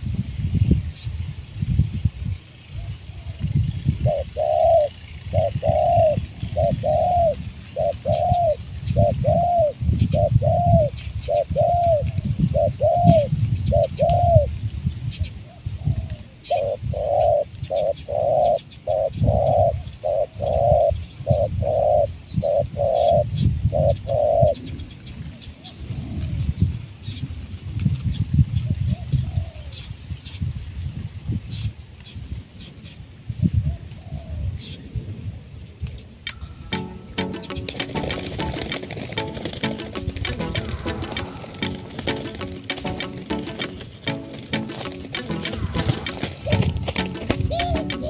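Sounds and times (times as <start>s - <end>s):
dove cooing: 2.8s - 14.5s, 15.5s - 24.8s, 28.9s - 29.8s, 37.2s - 48.0s.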